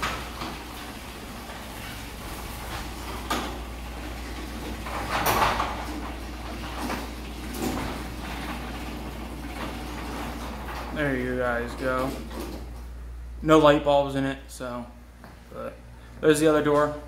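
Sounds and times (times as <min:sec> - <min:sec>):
garage door panels rattling: 0:00.0 - 0:12.8
garage door opener humming: 0:00.0 - 0:17.0.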